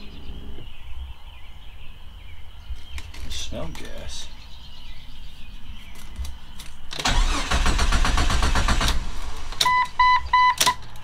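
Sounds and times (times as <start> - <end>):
starter cranking engine: 7.0 - 9.2
dashboard chime beeping: 9.7 - 10.7.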